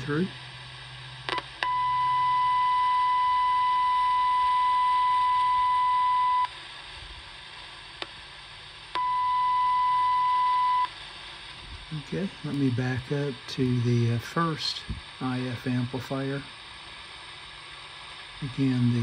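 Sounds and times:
high-pitched test tone from radio: 1.3 - 6.6, 8.9 - 11.0.

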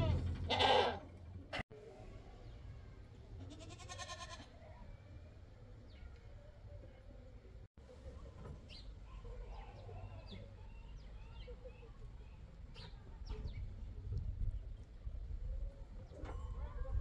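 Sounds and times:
small birds chirping: 5.7 - 16.2.

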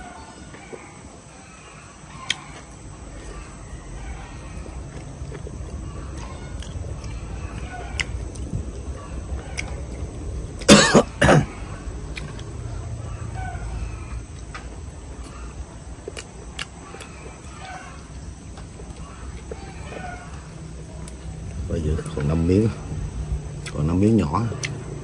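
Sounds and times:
chicken squawking: 0.0 - 10.3, 12.9 - 14.3, 15.2 - 18.2, 18.8 - 21.1
low steady background noise: 0.0 - 25.0.

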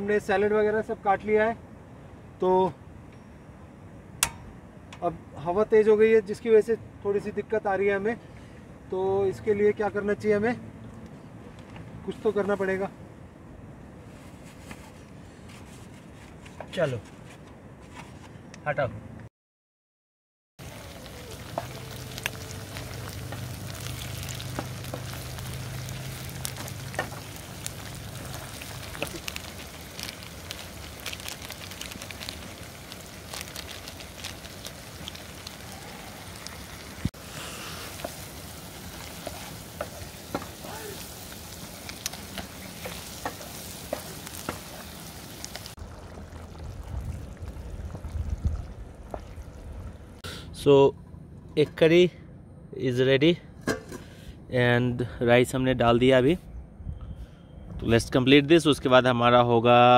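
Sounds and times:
food sizzling in hot oil: 20.6 - 49.4.

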